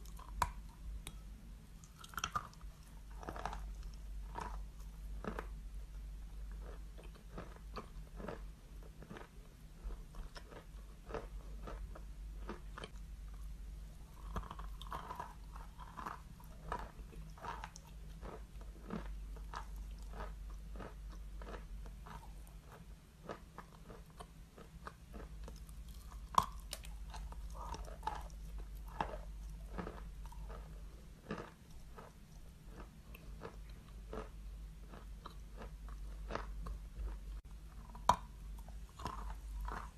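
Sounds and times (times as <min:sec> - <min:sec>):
chalk being chewed: 0:14.1 - 0:39.9.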